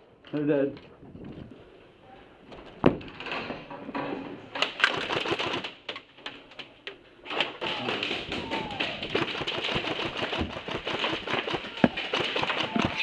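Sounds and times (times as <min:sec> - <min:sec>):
airsoft rifle firing bursts: 0:04.7 - 0:05.8, 0:09.0 - 0:13.0
sharp crack: 0:07.3 - 0:13.0.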